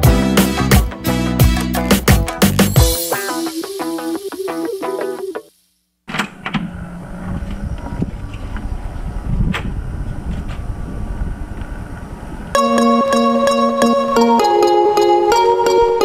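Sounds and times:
intro music: 0.0 - 5.5, 12.6 - 16.0
wind on microphone: 7.0 - 12.6.

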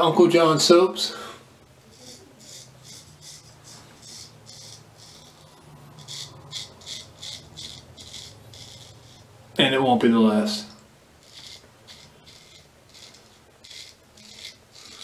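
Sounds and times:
razor scraping stubble: 1.7 - 9.5, 11.2 - 15.0.

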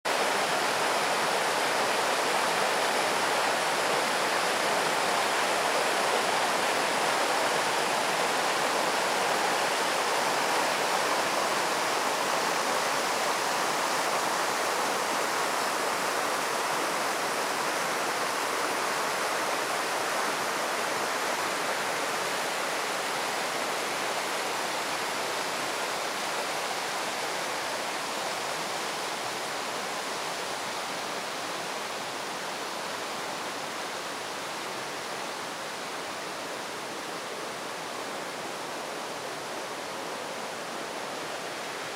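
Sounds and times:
river rushing over rocks: 0.1 - 41.9.

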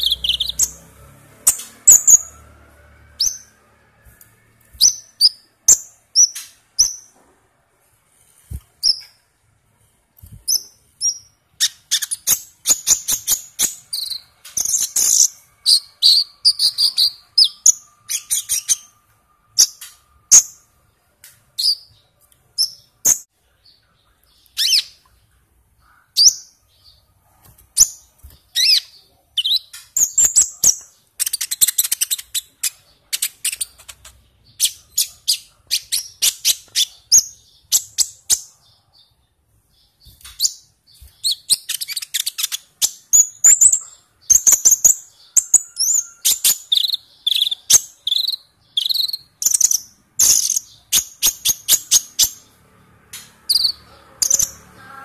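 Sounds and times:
bird chirping and trilling: 0.0 - 4.0, 4.8 - 7.2, 10.3 - 20.8, 21.6 - 23.3, 24.2 - 25.2, 25.8 - 27.1, 27.8 - 55.0.

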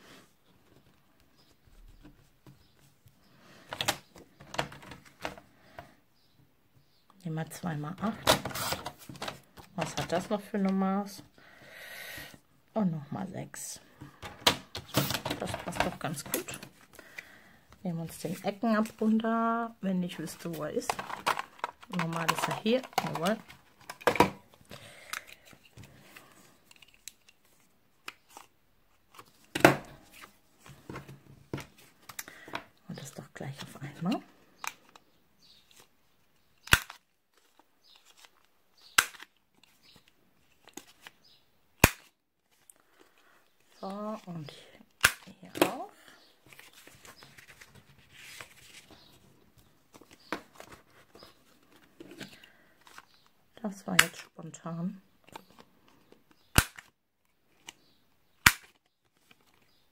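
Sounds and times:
paper handling: 46.4 - 53.2.

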